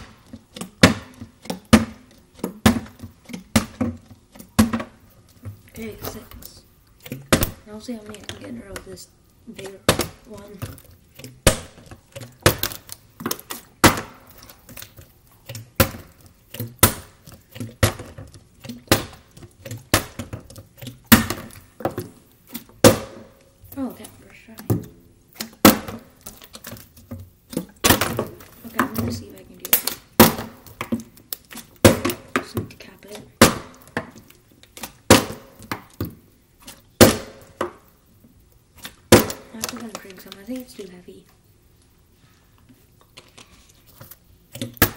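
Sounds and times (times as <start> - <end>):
plastic bottle thudding on stone: 0.0 - 6.2, 7.1 - 7.6, 9.8 - 10.8, 11.4 - 14.4, 15.7 - 20.5, 21.1 - 22.2, 22.8 - 23.4, 24.6 - 26.3, 27.6 - 31.2, 31.8 - 32.7, 33.4 - 34.2, 35.0 - 36.2, 37.0 - 37.9, 39.1 - 40.1.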